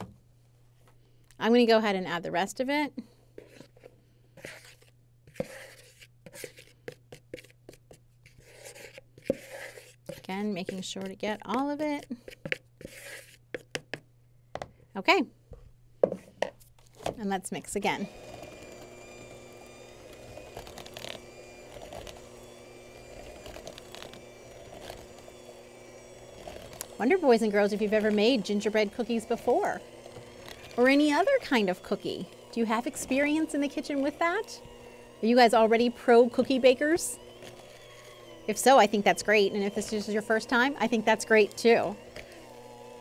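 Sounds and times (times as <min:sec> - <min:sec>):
electric hand mixer whirring: 0:08.4 - 0:12.3, 0:17.6 - 0:43.0.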